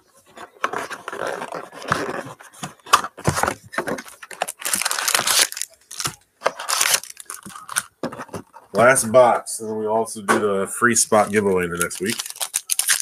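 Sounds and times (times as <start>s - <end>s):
foil packs rustling and crinkling: 0.7s - 8.4s, 11.1s - 13.0s
cardboard box tearing: 4.4s - 7.4s.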